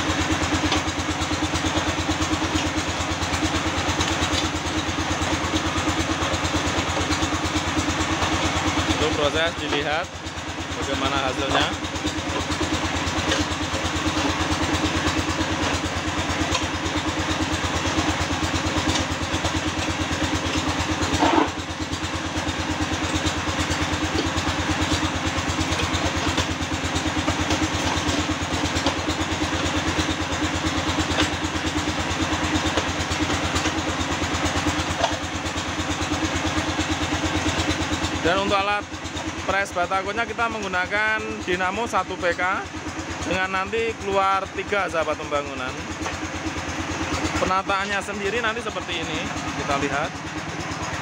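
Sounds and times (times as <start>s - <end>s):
concrete mixer running: 0.0s - 51.0s.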